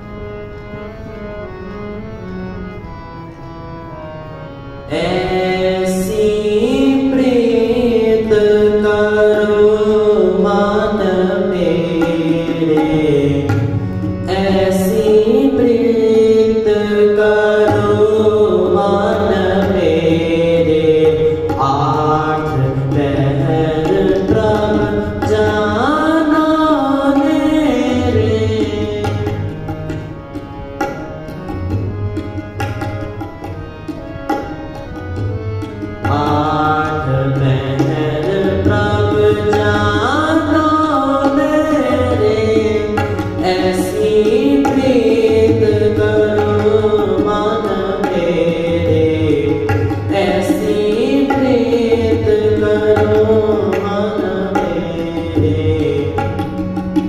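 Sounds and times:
harmonium chords: 0.0 - 57.0
person singing: 4.9 - 29.5, 36.1 - 56.4
tabla strokes: 11.6 - 15.2, 16.5 - 57.0.

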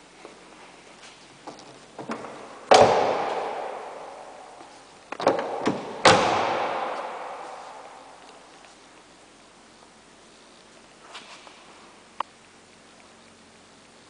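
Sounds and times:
car doors slamming with echo: 2.0 - 8.3.

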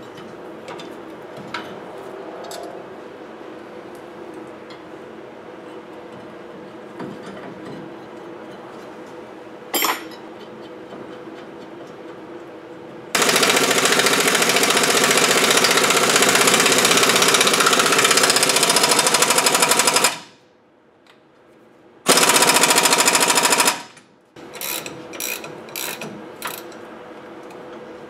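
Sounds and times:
power tool hammering: 13.2 - 20.3, 22.1 - 24.0
hand ratchet clicks: 24.5 - 26.7.

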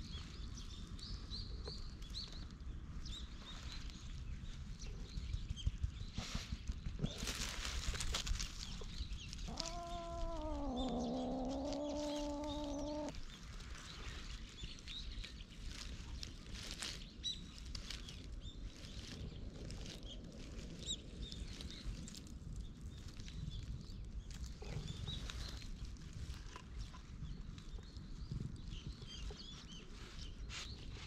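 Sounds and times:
long pitched cat call: 9.4 - 13.1.

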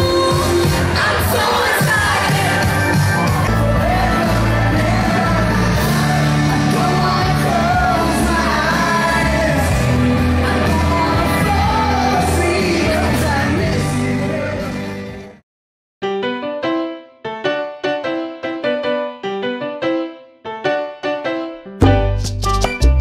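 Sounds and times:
pop dance music with singing: 0.0 - 15.4.

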